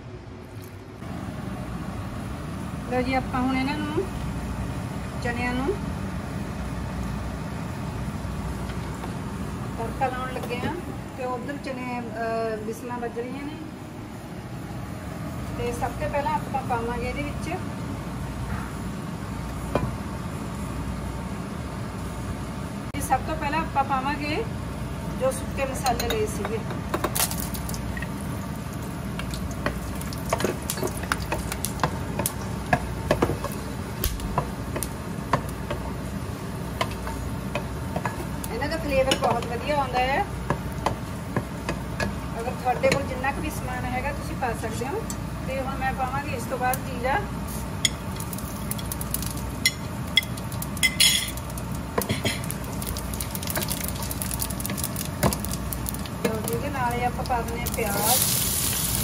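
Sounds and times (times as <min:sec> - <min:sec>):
spices sizzling in hot oil: 0:25.6 - 0:59.0.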